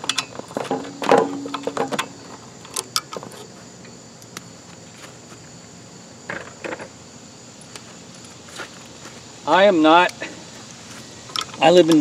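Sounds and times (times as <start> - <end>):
tool scuffs: 4.6 - 5.5, 7.8 - 9.3.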